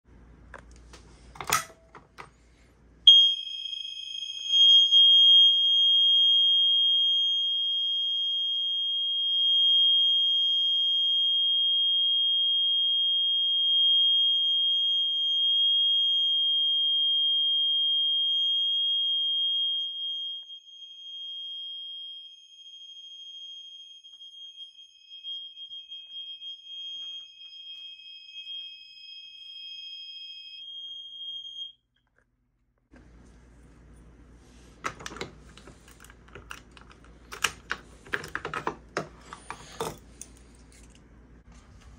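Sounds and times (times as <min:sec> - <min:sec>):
high-pitched alarm tone: 0:03.1 - 0:08.4, 0:13.2 - 0:31.8.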